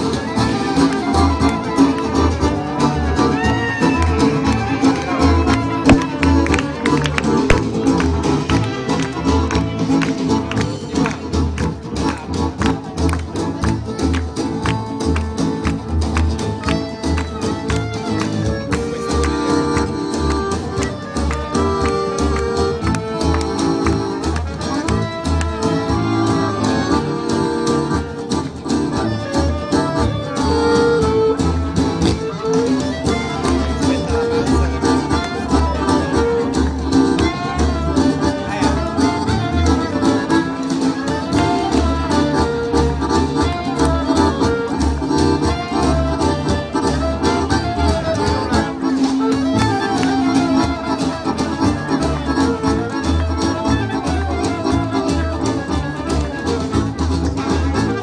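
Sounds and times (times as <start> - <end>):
instrumental music with driving beat: 0.0 - 58.0.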